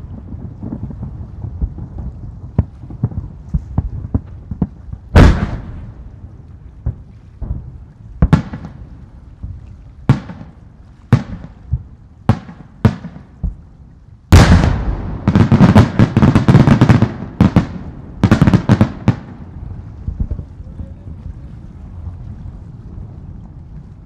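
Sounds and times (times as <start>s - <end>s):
firework crackle: 0.0s - 9.3s, 14.3s - 20.4s
firework shells bursting: 14.3s - 19.4s.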